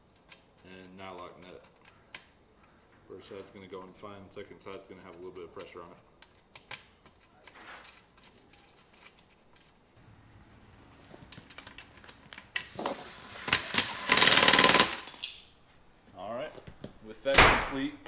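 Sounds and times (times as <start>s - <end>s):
hand tools clicking: 11.3s - 15.4s
cordless drill rattling: 11.4s - 15.1s.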